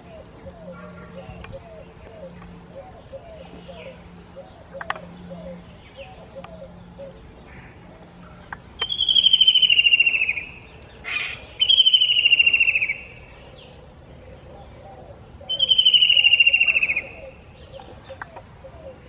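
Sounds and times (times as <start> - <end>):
kingfisher trilling call: 8.8 - 13.3, 15.5 - 17.4.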